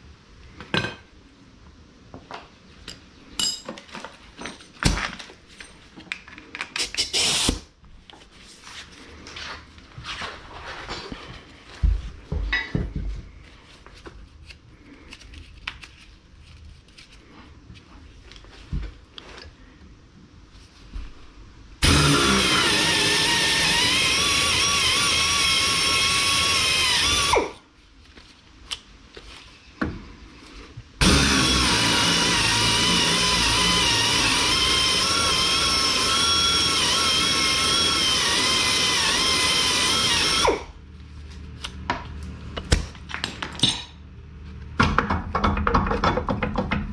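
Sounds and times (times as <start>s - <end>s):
power tool whining: 6.9s - 7.6s, 21.8s - 27.6s, 31.0s - 40.8s
tools clicking and knocking: 43.1s - 44.0s, 44.8s - 46.9s.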